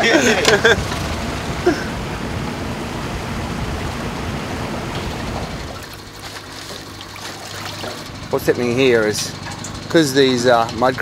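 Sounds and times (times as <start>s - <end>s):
water rushing: 0.0s - 8.1s
outboard motor running: 0.0s - 11.0s
wind: 0.0s - 11.0s.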